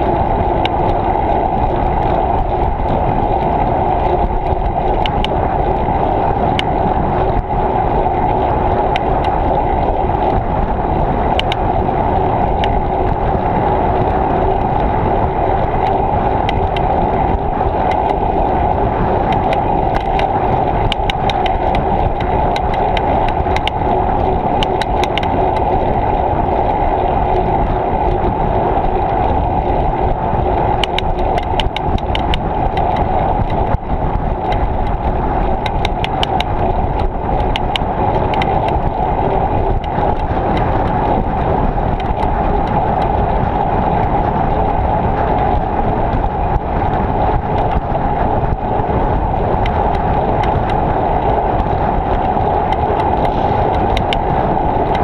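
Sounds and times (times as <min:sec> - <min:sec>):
bicycle tyres on road: 0:00.0 - 0:55.0
wind rushing: 0:00.0 - 0:55.0
sharp clicks: 0:24.6 - 0:25.7, 0:30.8 - 0:33.8, 0:35.6 - 0:38.8, 0:52.2 - 0:55.0.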